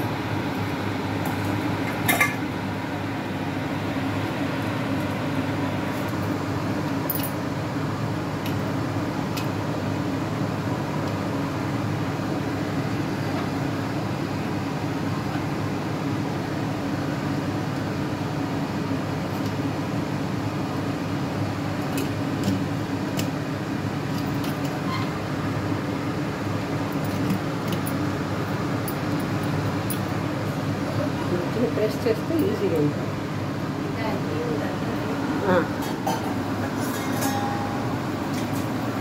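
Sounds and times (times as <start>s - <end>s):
low mechanical hum: 0.0s - 39.0s.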